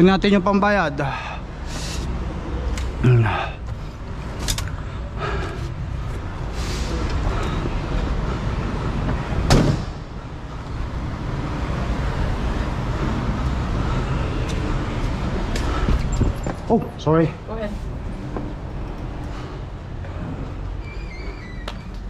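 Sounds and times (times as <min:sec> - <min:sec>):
truck door shutting thud: 0:09.4 - 0:10.0.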